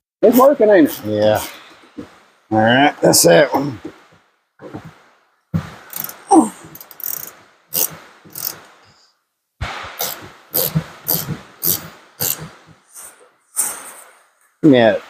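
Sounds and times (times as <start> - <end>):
hand tool working in short strokes: 6.8 - 8.6, 10.0 - 12.5.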